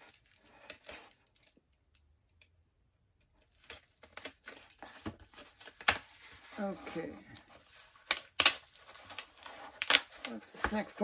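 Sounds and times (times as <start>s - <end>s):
comic books rustling and tapping: 3.2s - 11.0s.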